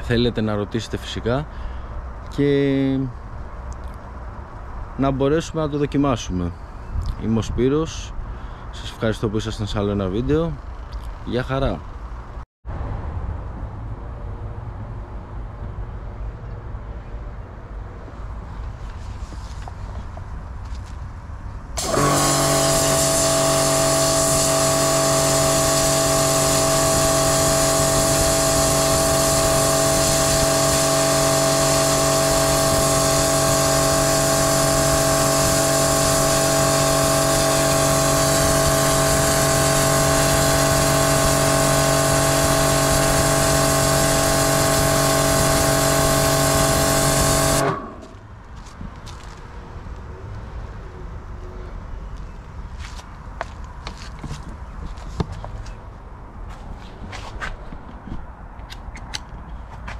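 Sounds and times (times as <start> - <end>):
pressure washer running: 21.8 - 48.2.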